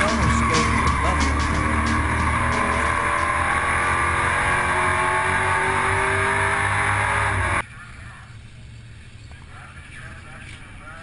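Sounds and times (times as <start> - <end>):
truck engine at high revs: 0.0 - 7.6.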